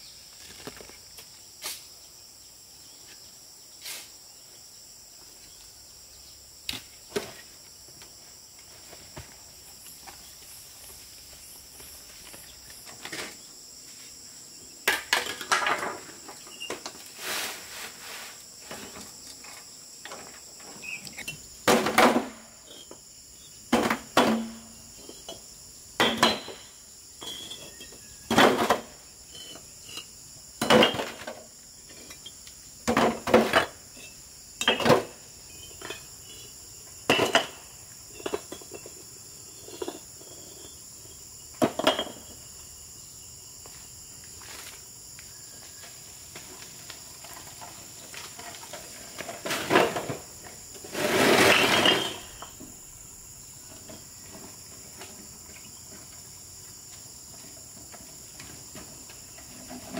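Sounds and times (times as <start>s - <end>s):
insects droning: 0.0s - 59.9s
bricks clinking into wheelbarrow: 14.9s - 17.0s, 23.8s - 39.0s, 39.6s - 40.5s, 41.6s - 42.4s, 47.2s - 52.6s
wheelbarrow rattling across concrete: 47.2s - 52.6s.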